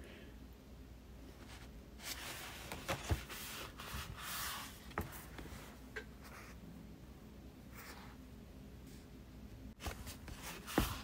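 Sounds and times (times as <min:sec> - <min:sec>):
paper rustling: 0:09.8 - 0:11.0.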